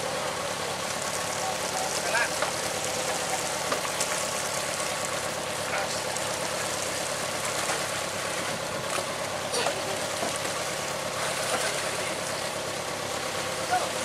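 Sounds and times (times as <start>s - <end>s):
boat engine humming: 0.0s - 14.0s
sea water splashing: 0.8s - 14.0s.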